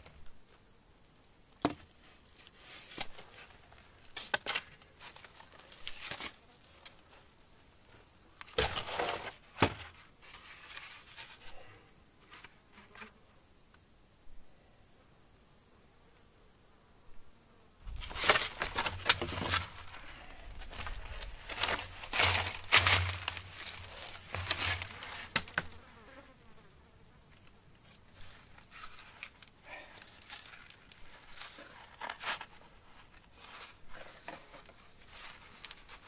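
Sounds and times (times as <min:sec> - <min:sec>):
wooden poles and cord crackling: 0:01.6 - 0:07.2, 0:17.8 - 0:25.9, 0:27.3 - 0:36.0.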